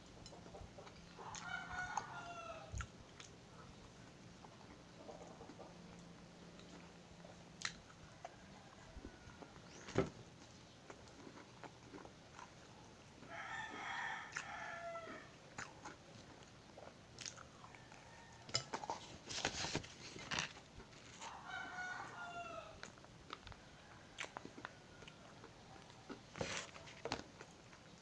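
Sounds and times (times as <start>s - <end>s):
crunching and chewing: 0.2s - 22.2s, 22.8s - 28.0s
rooster crowing: 1.2s - 2.7s, 13.3s - 15.3s, 21.2s - 22.8s.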